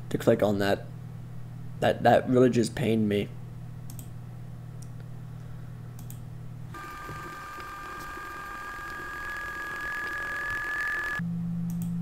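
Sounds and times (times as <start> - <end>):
steady low hum: 0.0 - 12.0
faint mouse clicks: 3.9 - 4.1, 6.0 - 6.2.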